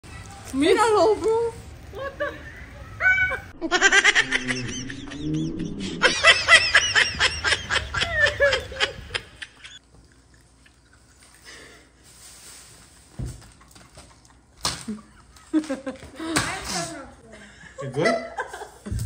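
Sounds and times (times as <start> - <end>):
people laughing hard: 1.9 - 9.8.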